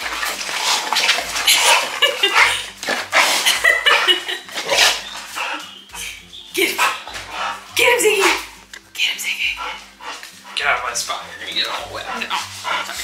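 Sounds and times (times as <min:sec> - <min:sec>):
dogs breathy play bursts: 0:00.0 - 0:13.0
dog yips: 0:03.5 - 0:08.5.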